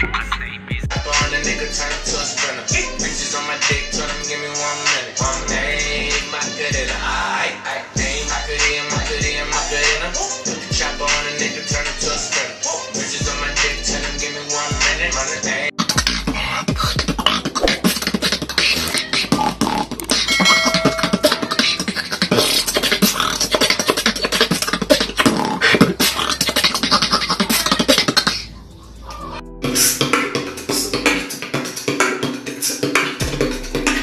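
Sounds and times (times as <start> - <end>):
man beatboxing: 0.0 - 7.2, 21.4 - 28.4, 29.7 - 34.0
hip hop music: 0.0 - 34.0.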